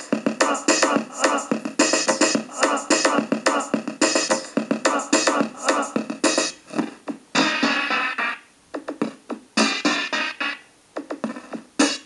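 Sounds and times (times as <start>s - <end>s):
chiptune synthesizer music: 7.3s - 8.4s, 9.6s - 10.7s.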